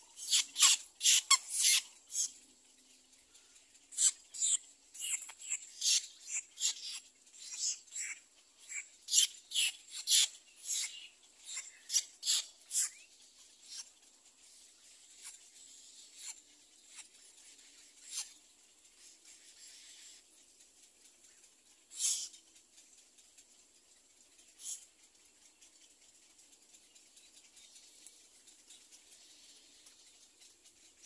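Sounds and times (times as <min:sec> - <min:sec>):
egret chicks giving raspy calls: 0:00.2 - 0:02.4, 0:03.9 - 0:13.0.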